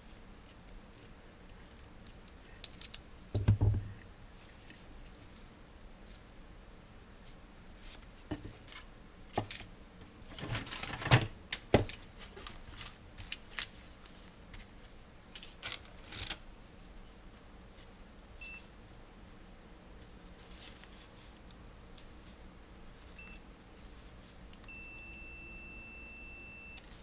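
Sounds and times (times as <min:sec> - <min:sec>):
paper rustling: 0:10.3 - 0:11.2, 0:11.8 - 0:16.4
multimeter beep: 0:18.4 - 0:18.7, 0:23.2 - 0:23.4, 0:24.6 - 0:26.9.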